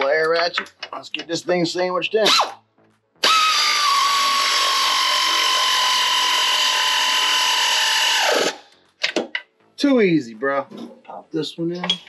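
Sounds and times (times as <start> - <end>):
air ratchet whining: 3.2 - 8.7.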